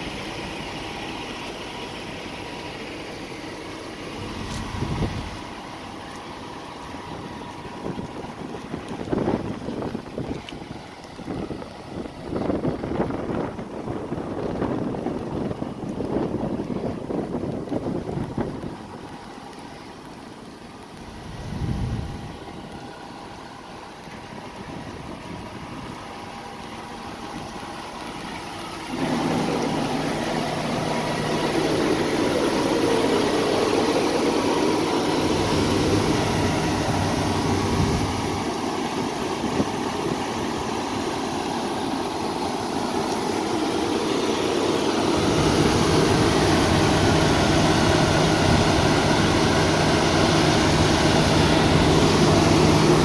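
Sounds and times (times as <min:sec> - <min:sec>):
diesel truck idling: 0:00.0 - 0:53.0
broad rushing noise: 0:24.5 - 0:53.0.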